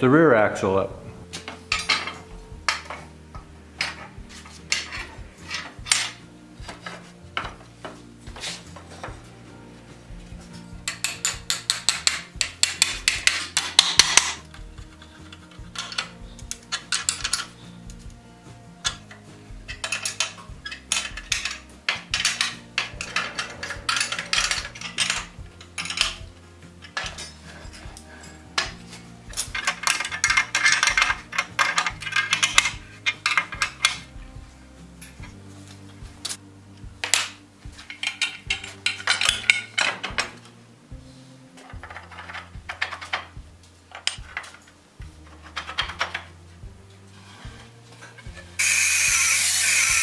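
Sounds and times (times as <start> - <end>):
quiet background music: 0.0 - 50.0
ratchet wrench clicking: 48.6 - 50.0.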